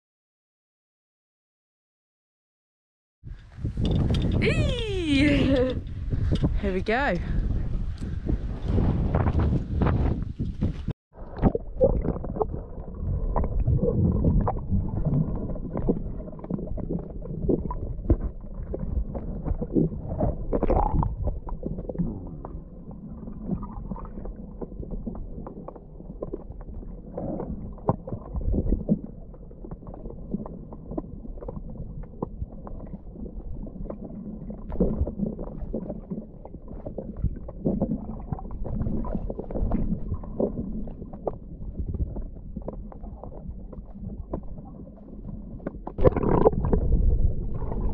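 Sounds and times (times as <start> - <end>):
underwater rumble of moving water: 3.3 - 47.9
small underwater clicks and crackles: 10.2 - 47.9.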